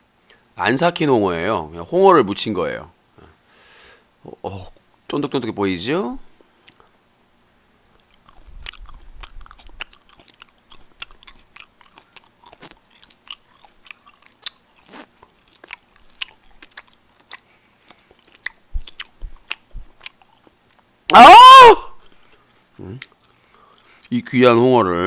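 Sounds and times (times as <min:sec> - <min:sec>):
person chewing wetly: 0:07.9 - 0:20.9, 0:22.0 - 0:24.2.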